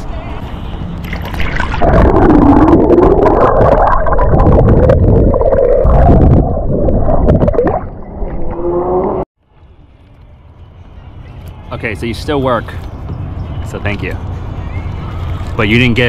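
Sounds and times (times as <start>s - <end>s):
muffled underwater river rumbling: 1.2s - 9.2s.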